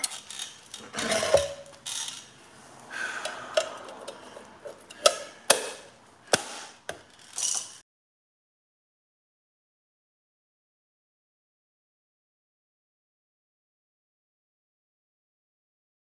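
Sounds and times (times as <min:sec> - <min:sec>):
handling and scraping noises: 0:00.0 - 0:07.8
wheel cap clicking into place: 0:03.2 - 0:07.1.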